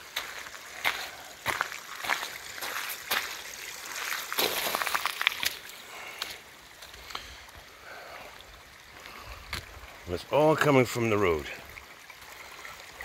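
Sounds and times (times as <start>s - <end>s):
runoff water trickling over road: 0.0s - 13.0s.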